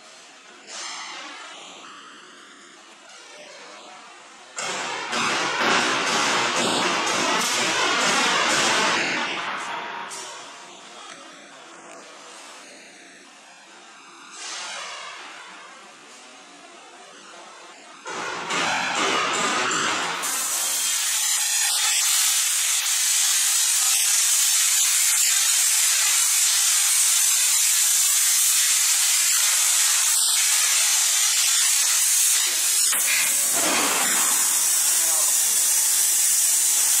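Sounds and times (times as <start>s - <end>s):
plasma torch cutting metal: 4.6s - 10.7s, 18.1s - 37.0s.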